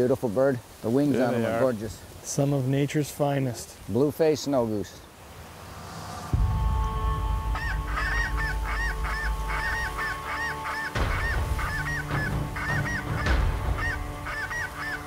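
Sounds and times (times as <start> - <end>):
low wind rumble: 5.0 - 15.0
geese yelping calls: 7.6 - 15.0.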